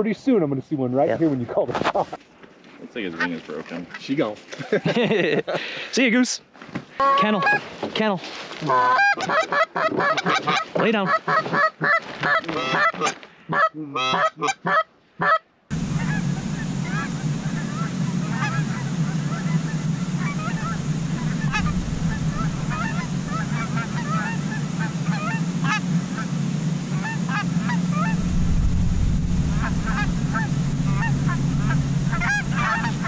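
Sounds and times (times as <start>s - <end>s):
geese honking: 7.0s - 7.6s, 8.7s - 28.4s, 29.2s - 33.0s
steady low hum: 15.7s - 33.0s.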